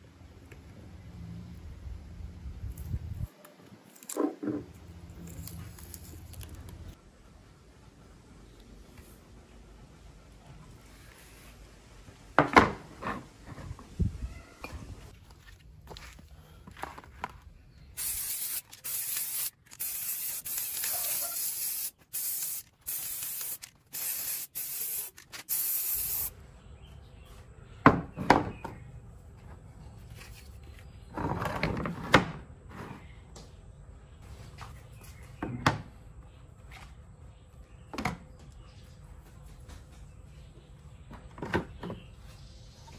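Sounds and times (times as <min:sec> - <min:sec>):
spray can hissing: 0:18.0 - 0:26.3.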